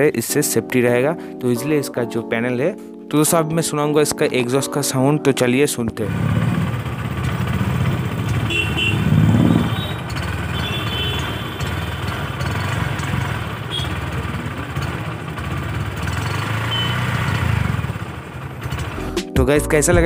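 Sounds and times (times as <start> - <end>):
motorcycle engine exhaust: 6.1 - 19.0.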